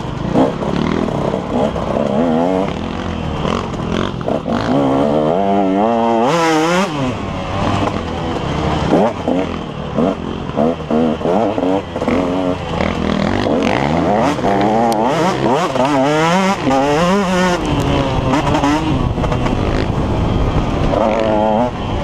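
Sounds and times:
dirt bike engine revving: 0:00.0 - 0:22.0
wind rush: 0:17.4 - 0:22.0.

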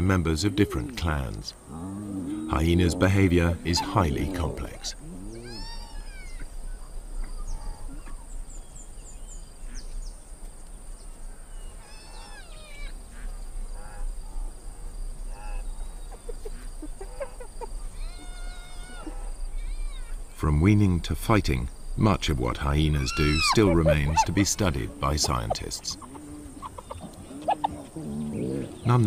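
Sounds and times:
hyena cubs squealing and whining: 0:02.1 - 0:06.6, 0:11.7 - 0:13.0, 0:17.0 - 0:20.2, 0:23.0 - 0:28.8.

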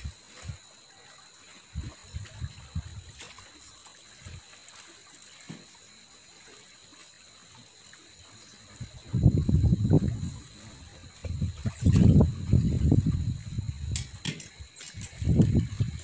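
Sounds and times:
water splashing and lapping: 0:00.0 - 0:16.0.

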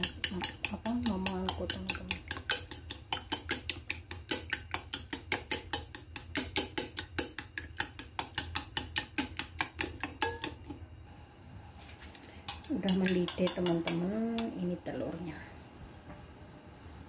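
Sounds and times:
eggs beaten in metal bowl: 0:00.0 - 0:10.8, 0:12.4 - 0:15.2.

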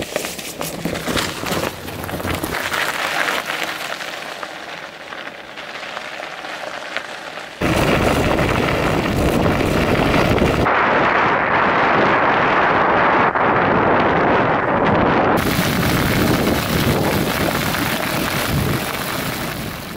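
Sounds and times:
bicycle tyres rolling on ice: 0:00.0 - 0:19.9
wind buffeting microphone: 0:07.6 - 0:19.9.

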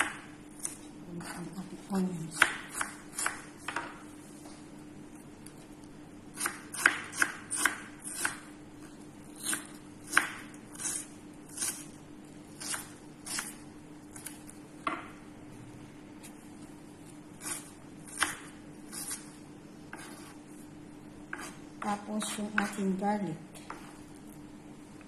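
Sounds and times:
faint steady hum: 0:00.0 - 0:25.0
knife chopping on wooden board: 0:02.4 - 0:04.0, 0:06.4 - 0:08.4, 0:09.4 - 0:11.0, 0:17.4 - 0:19.2, 0:19.9 - 0:20.4, 0:21.3 - 0:22.8.

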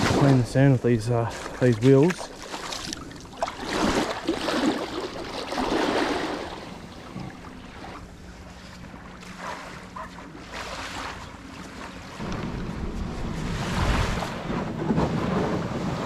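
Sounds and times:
feet splashing in shallow water: 0:01.1 - 0:12.3
small waves on sandy shore: 0:01.3 - 0:16.0
wind on microphone: 0:12.2 - 0:16.0.

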